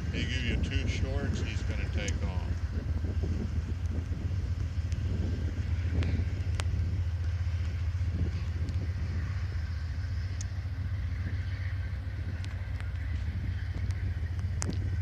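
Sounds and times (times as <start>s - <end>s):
diesel train rumbling: 0.0s - 15.0s
faint clicks: 6.0s - 6.7s, 10.3s - 10.6s, 12.3s - 14.8s.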